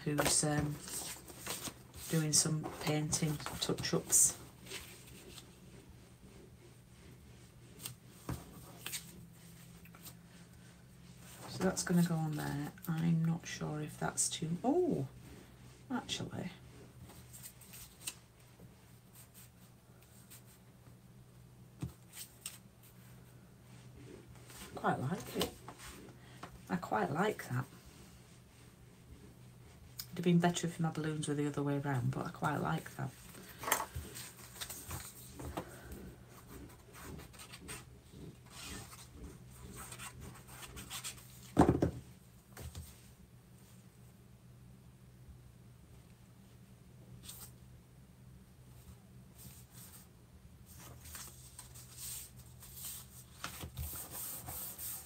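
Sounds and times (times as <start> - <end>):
paper rustling: 0.2 - 5.6, 33.1 - 41.6, 50.7 - 55.0.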